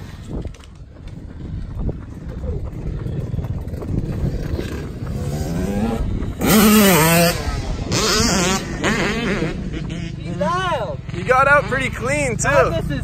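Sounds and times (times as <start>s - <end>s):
dirt bike engine revving: 3.7s - 13.0s.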